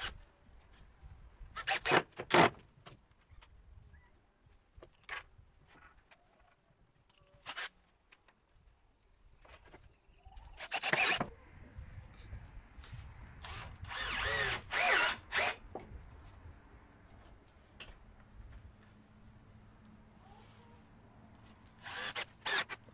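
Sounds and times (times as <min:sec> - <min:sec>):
cordless drill driving screws: 0:10.6 - 0:11.3, 0:13.4 - 0:15.6, 0:21.8 - 0:22.8.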